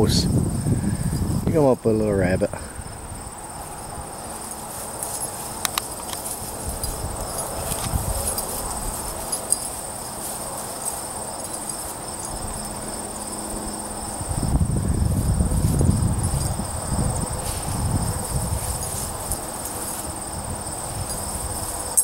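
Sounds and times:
crickets trilling: 0:00.0 - 0:22.0
low rumbling rustle: 0:02.4 - 0:22.0.

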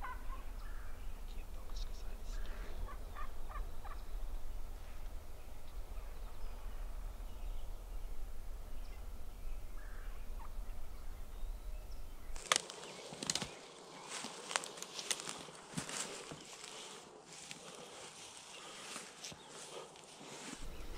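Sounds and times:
wild turkeys calling: 0:00.0 - 0:07.6, 0:08.6 - 0:20.9
steady low rumble: 0:00.0 - 0:12.4, 0:20.6 - 0:20.9
rustling: 0:12.3 - 0:20.9.

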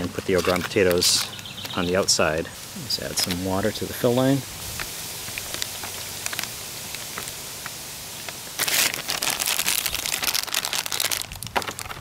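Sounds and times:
faint hiss: 0:00.0 - 0:12.0
plastic bag crinkling: 0:05.2 - 0:12.0.

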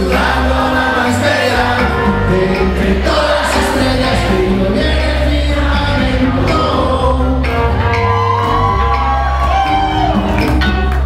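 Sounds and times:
person singing: 0:00.0 - 0:08.2
conga drums: 0:00.0 - 0:11.0
keyboard playing: 0:00.0 - 0:11.0
upright bass: 0:00.0 - 0:11.0.

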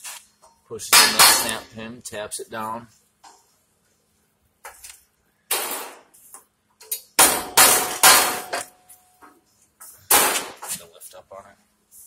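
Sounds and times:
steel frame ringing: 0:00.9 - 0:01.7.

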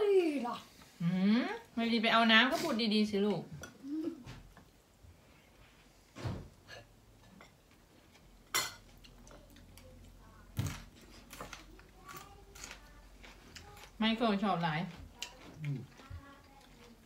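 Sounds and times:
cutlery clinking on plates: 0:06.6 - 0:09.4.

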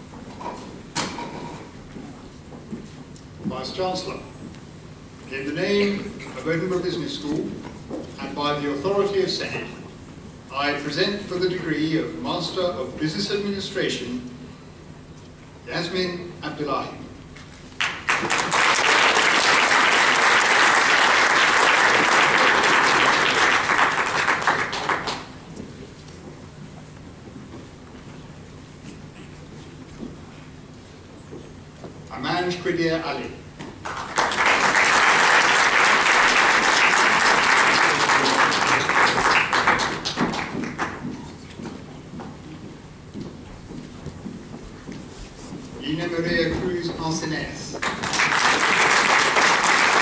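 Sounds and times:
audience applauding: 0:17.7 - 0:25.4, 0:33.8 - 0:41.2, 0:47.8 - 0:50.0.

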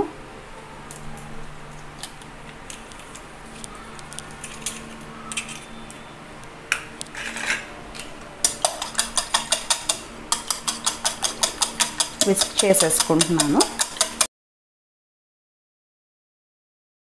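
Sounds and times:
whisk beating in a bowl: 0:08.4 - 0:14.3.

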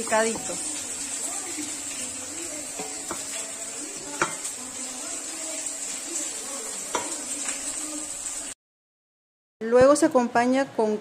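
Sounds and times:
spoon stirring wet food: 0:00.3 - 0:07.6
spoon clinking against metal bowl: 0:04.2 - 0:04.5.

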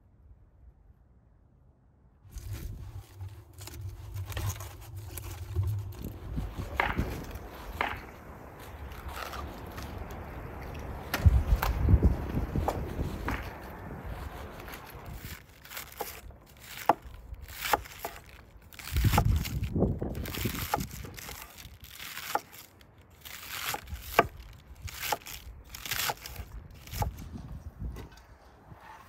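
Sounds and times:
knife slicing cabbage on board: 0:02.4 - 0:10.1, 0:12.6 - 0:27.2.

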